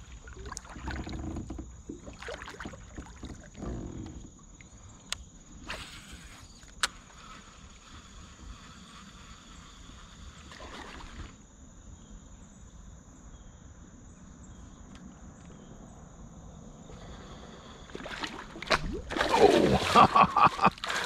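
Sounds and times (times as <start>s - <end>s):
faint water sounds: 0.0s - 13.3s, 14.1s - 21.0s
insects droning: 0.0s - 21.0s
water splashing loudly: 18.0s - 21.0s.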